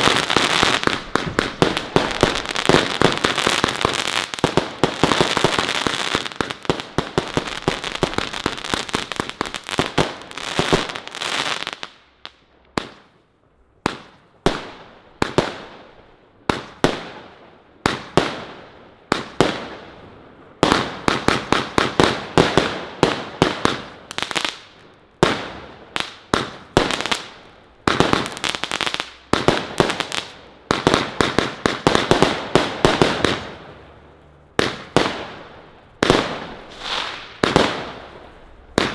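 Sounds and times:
fireworks firing shots: 0.0 - 11.8, 20.6 - 33.8, 34.6 - 38.9
crackling star bursts: 0.0 - 13.1, 23.7 - 38.9.

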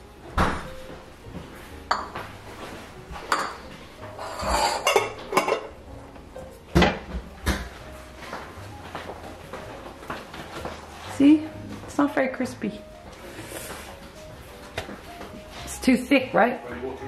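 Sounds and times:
cookware and utensils clattering: 3.1 - 7.7.

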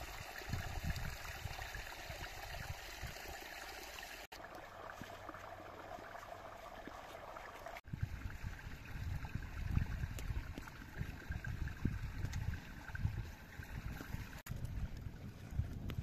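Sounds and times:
running water rushing: 0.0 - 15.6.

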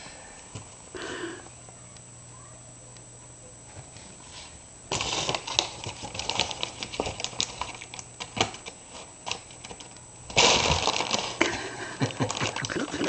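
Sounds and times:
paper bag crinkling and rustling: 4.9 - 13.0.

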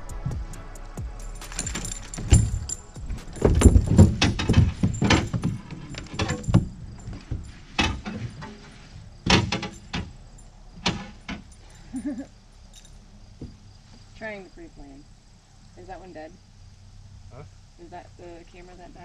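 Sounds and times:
gear knocking and rattling: 1.0 - 11.8.

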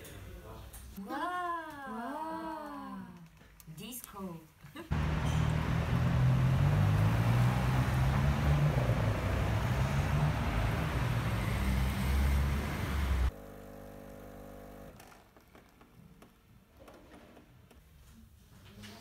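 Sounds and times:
loud rushing noise: 4.9 - 13.3
vehicle engine hum: 4.9 - 13.4.

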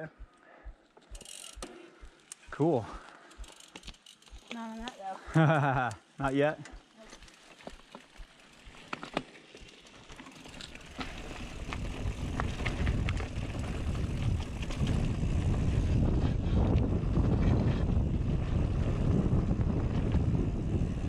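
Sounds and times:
bike tyres rolling on dirt: 1.0 - 21.0
wind rushing over microphone: 11.5 - 21.0.

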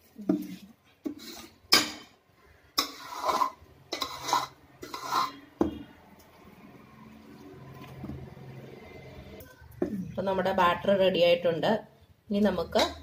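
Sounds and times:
spoon scraping steel bowl: 0.4 - 1.9, 2.8 - 5.9.

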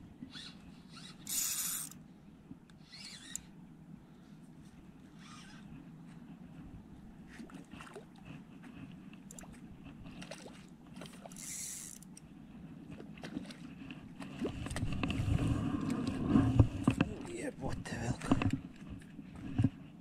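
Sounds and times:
fishing reel ticking: 0.3 - 2.0, 2.8 - 3.5, 11.3 - 12.2
rumbling handling noises: 12.0 - 20.0.

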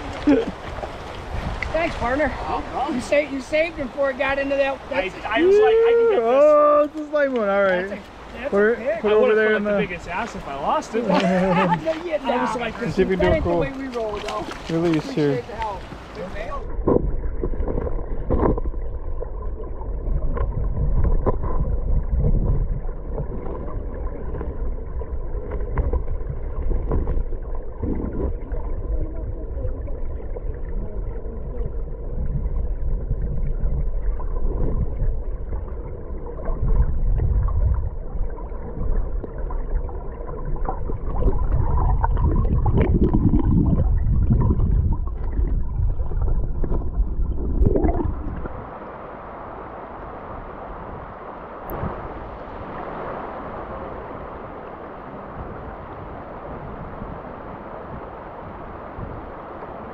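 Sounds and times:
muffled underwater river flow: 0.0 - 59.9.

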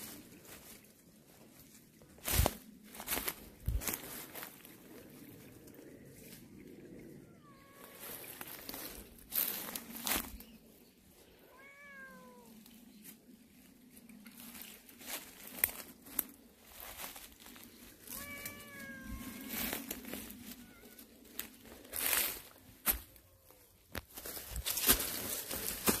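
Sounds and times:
footsteps crunching on dry leaves: 0.0 - 5.3, 7.8 - 10.6, 14.3 - 26.0
cat meowing: 7.2 - 8.0, 11.5 - 12.6, 18.1 - 19.6.

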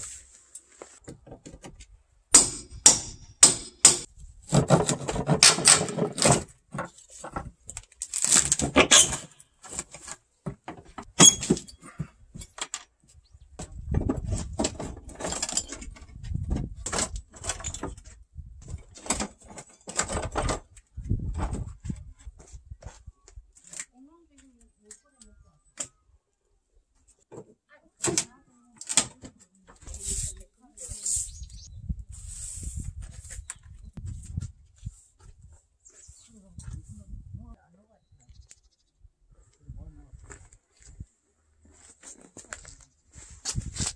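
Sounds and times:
floorboards scraping and rattling: 4.4 - 7.6, 13.8 - 22.6.

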